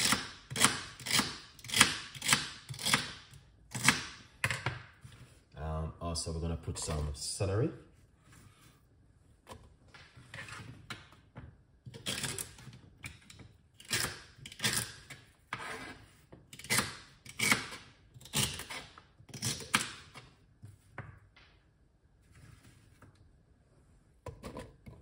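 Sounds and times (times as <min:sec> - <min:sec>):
knife cutting celery on board: 0:16.6 - 0:20.0.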